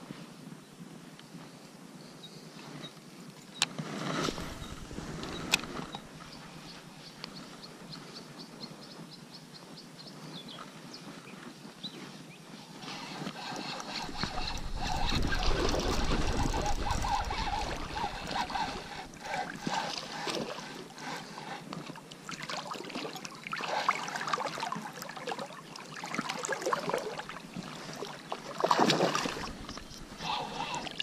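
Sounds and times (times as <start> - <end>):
fishing reel and boat handling noise: 3.6 - 6.4, 12.8 - 21.9, 29.2 - 31.0
water splashing: 13.4 - 21.0, 22.1 - 31.0.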